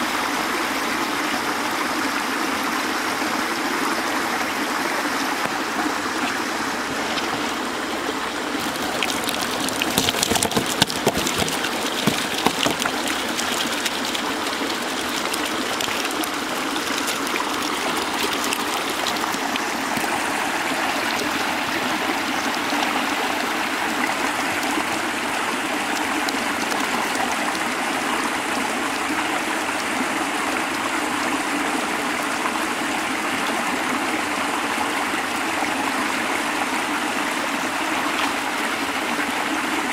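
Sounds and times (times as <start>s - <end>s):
water running in a canal: 0.0s - 39.9s
water pouring from pipes: 5.4s - 29.7s
sharp knocks or splashes: 8.6s - 20.3s.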